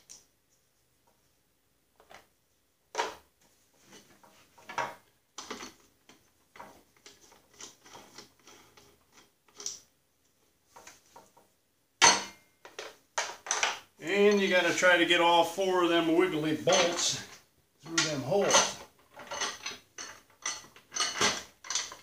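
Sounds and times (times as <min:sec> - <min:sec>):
clicks knocks and rattles: 0:18.0 - 0:22.0.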